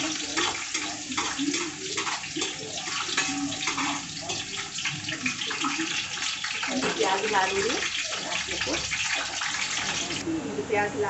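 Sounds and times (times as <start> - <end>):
ladle stirring in pot: 0.0 - 10.2
onion sizzling in hot oil: 0.0 - 10.2.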